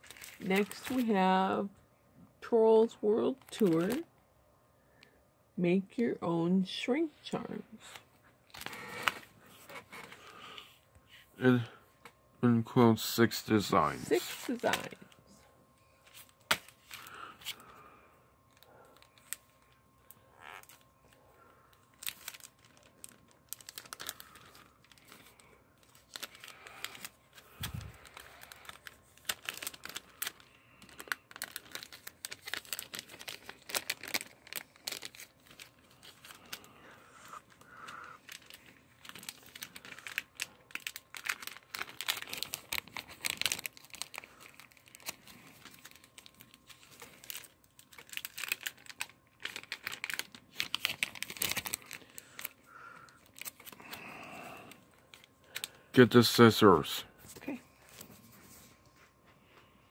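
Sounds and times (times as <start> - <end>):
plastic packaging crinkling: 0.0 - 1.4, 3.3 - 4.1, 7.8 - 10.7, 13.6 - 58.4.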